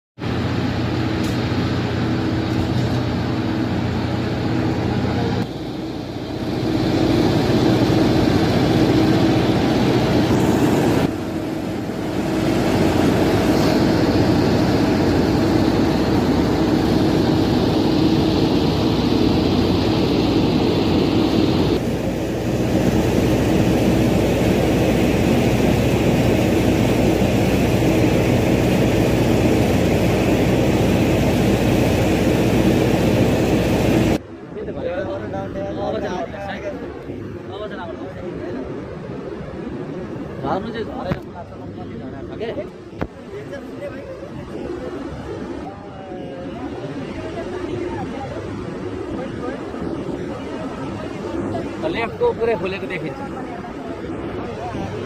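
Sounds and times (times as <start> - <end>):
turboprop engines droning: 0.2 - 55.0.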